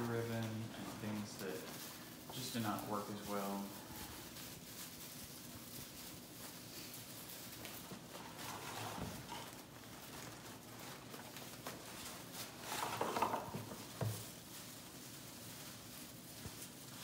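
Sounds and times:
ribbon and garland rustling: 0.0s - 17.0s.

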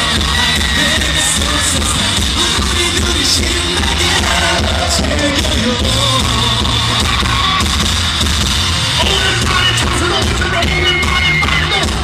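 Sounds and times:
live pop song with group vocals: 0.0s - 7.2s.

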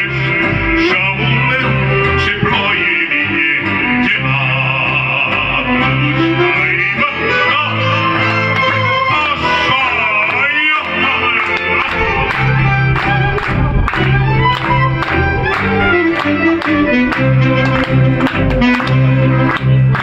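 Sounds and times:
man singing into microphone: 0.0s - 13.8s
guitar accompaniment: 0.0s - 20.0s.

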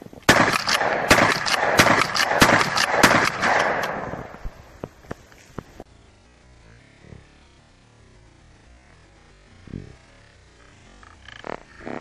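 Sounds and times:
shotgun shots ringing: 0.3s - 4.5s.

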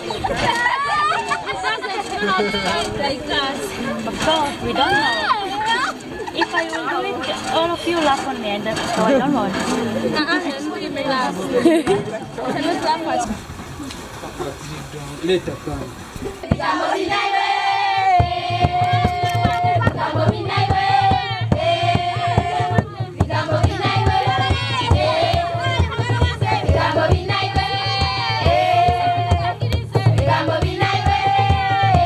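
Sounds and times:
steady drum beat: 16.2s - 32.0s.

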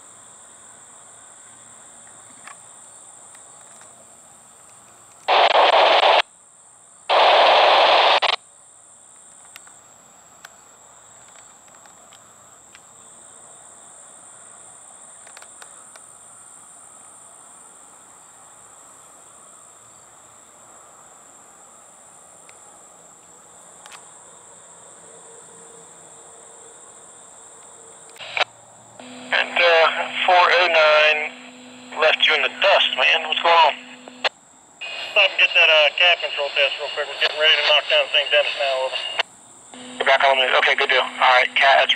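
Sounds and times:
insects buzzing: 0.2s - 41.9s
radio static bursts: 5.3s - 6.2s, 7.1s - 8.4s, 28.2s - 28.4s, 29.0s - 39.2s, 39.8s - 41.9s.

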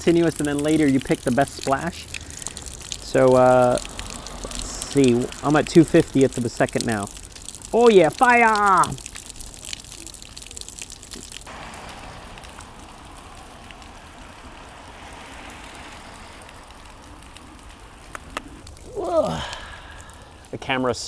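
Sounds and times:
heavy rain on wet pavement: 0.0s - 20.6s.

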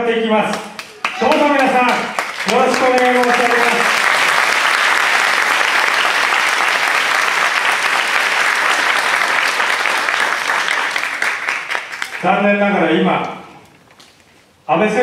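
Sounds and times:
audience applauding: 0.5s - 12.4s.

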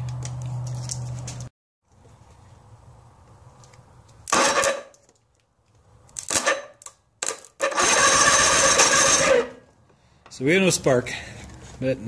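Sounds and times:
electric starter cranking outboard engine: 7.6s - 9.6s.

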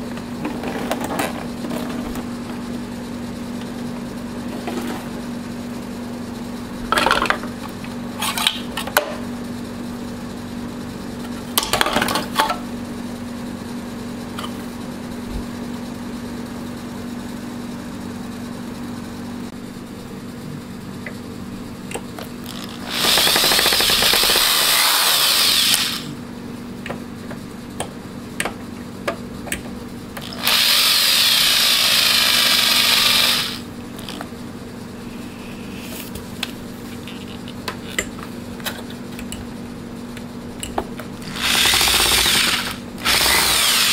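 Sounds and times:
steady low hum: 0.0s - 43.9s
cordless drill driving screws: 22.5s - 26.1s, 30.2s - 34.1s, 41.2s - 43.9s.

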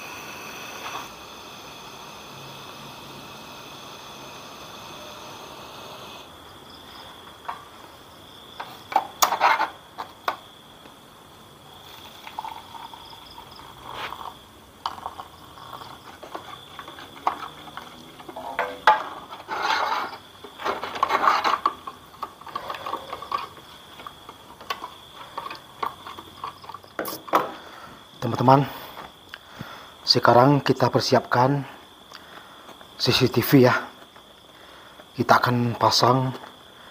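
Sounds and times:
camping stove gas hiss: 0.0s - 36.9s
water pouring into mug: 11.9s - 15.4s.

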